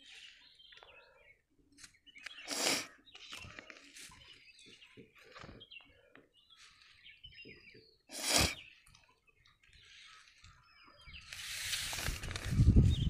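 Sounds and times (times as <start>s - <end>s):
birds chirping: 0.0s - 13.0s
paper rustling: 11.2s - 13.0s.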